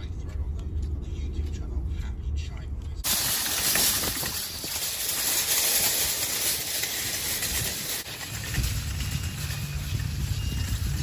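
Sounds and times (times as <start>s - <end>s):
shopping cart wheels rattling: 3.0s - 11.0s.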